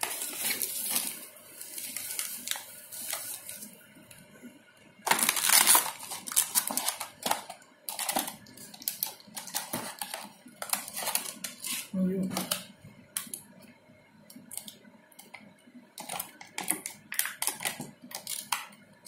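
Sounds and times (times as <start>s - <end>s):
plastic packaging crinkling: 0.0s - 3.8s, 5.0s - 13.4s, 16.0s - 18.8s.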